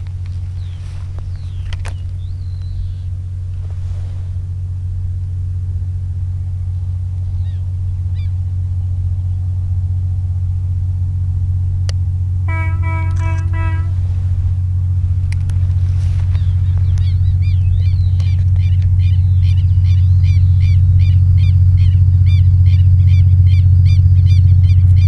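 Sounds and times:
diesel locomotive engine rumble: 0.0s - 25.0s
locomotive horn: 12.5s - 14.8s.

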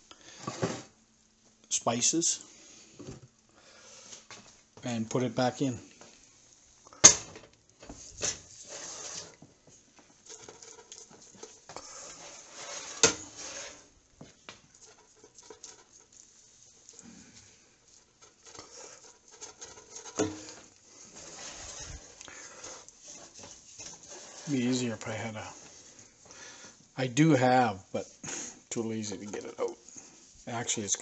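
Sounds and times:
basting brush dabbing and scraping: 10.1s - 31.0s.

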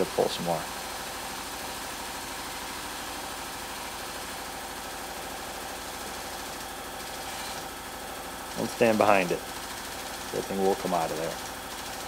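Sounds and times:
hydraulic pump running: 0.0s - 12.0s.

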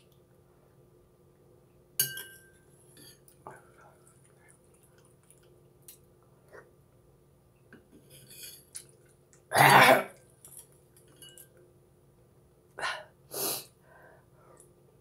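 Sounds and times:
woman coughing: 9.5s - 10.2s.

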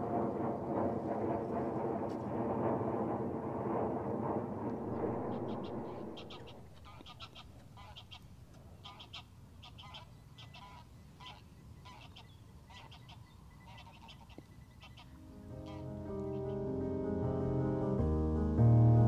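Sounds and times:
rushing noise: 0.0s - 7.0s
distant geese honking: 4.7s - 16.7s.

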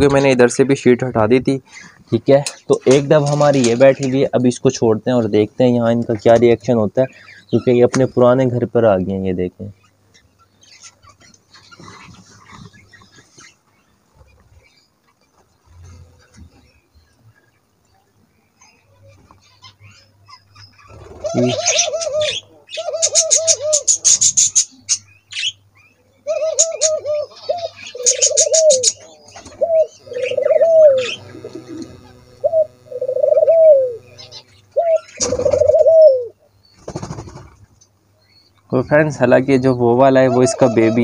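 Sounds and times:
doves cooing: 10.7s - 14.7s, 19.8s - 37.8s, 39.4s - 41.0s.

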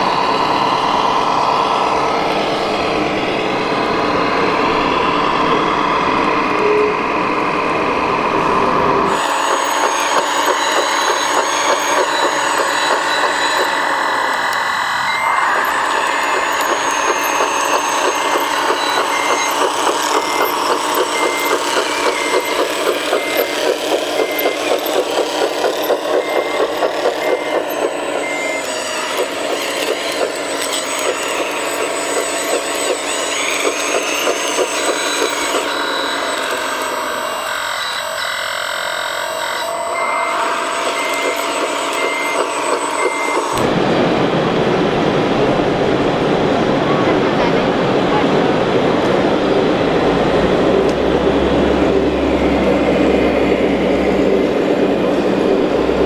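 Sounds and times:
toy truck engine: 0.0s - 43.7s
reversing beeper: 0.0s - 47.4s, 48.0s - 56.0s
rising and falling whine: 0.0s - 56.0s
toy loader engine chugging: 9.1s - 43.6s.

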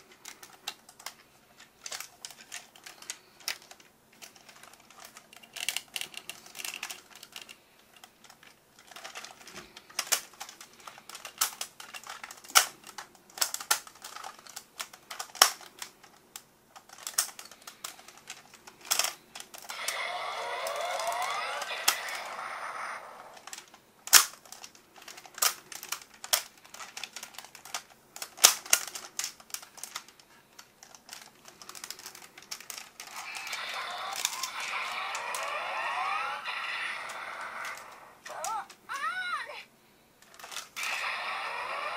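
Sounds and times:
plastic toy clicks and snaps: 1.8s - 38.8s
plastic grating: 16.8s - 38.8s, 40.2s - 41.9s.

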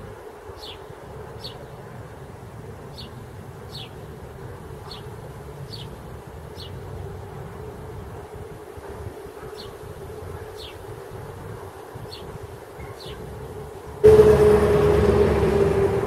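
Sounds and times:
low rumble: 14.0s - 16.0s.

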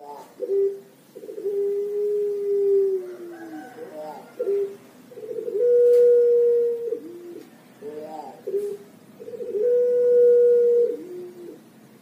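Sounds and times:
dove cooing: 0.0s - 11.8s.

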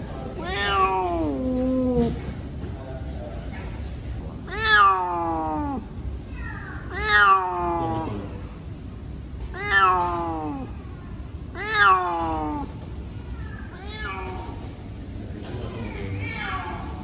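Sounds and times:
cat meowing loudly: 0.4s - 2.2s, 4.4s - 8.2s, 9.5s - 10.8s, 11.5s - 12.8s.

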